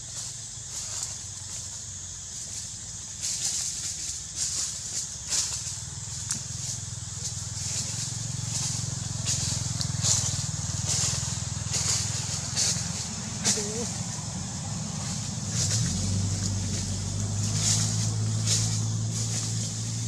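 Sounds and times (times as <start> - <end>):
high hiss: 0.0 - 20.0
low engine-like drone: 4.9 - 20.0.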